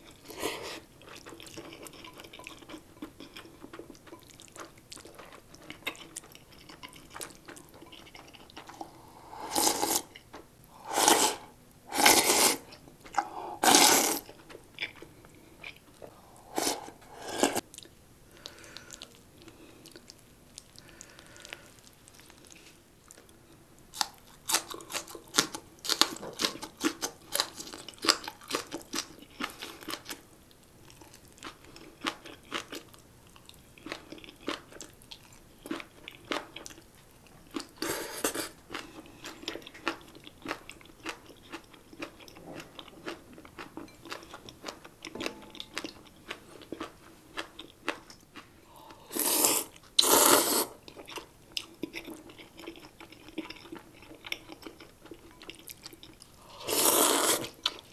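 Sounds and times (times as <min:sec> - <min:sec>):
wet crunching and chewing: 0:00.0 - 0:10.5, 0:11.4 - 0:57.9
loud slurping: 0:08.8 - 0:10.1, 0:10.8 - 0:14.3, 0:16.2 - 0:17.6, 0:49.1 - 0:50.8, 0:56.5 - 0:57.6.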